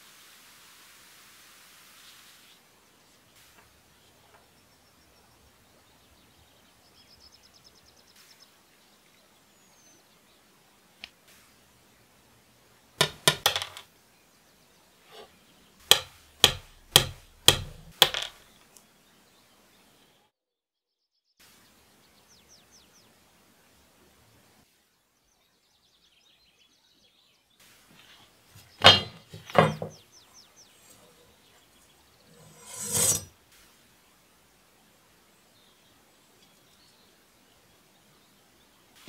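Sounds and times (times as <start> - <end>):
metal parts knocking on wood: 13.0 - 13.8, 15.9 - 18.4, 28.8 - 30.0.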